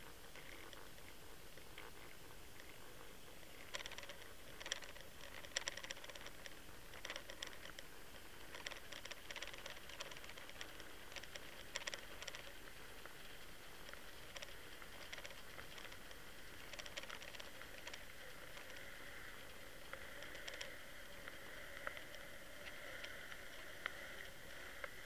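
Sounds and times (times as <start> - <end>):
steady underwater hiss: 0.0 - 25.0
fishing tackle clicking and rattling: 3.5 - 19.2, 19.8 - 23.9.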